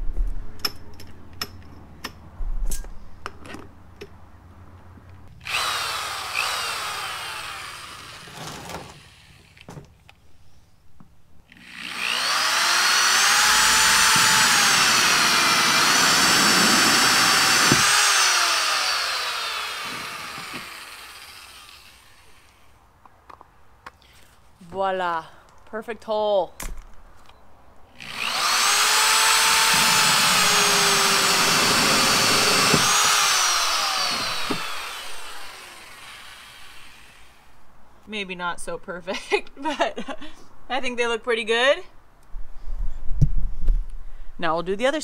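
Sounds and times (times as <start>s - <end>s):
power drill cutting plastic: 5.4s - 9.7s, 11.5s - 22.6s, 28.0s - 37.4s
power drill clicks: 11.5s - 22.6s, 28.0s - 36.8s.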